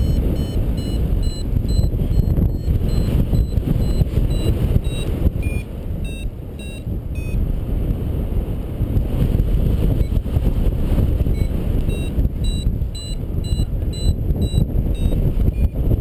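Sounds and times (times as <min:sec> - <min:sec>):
variometer beeping: 0:00.0 - 0:07.4, 0:09.9 - 0:10.2, 0:11.2 - 0:16.0
wind rushing over microphone: 0:00.0 - 0:16.0.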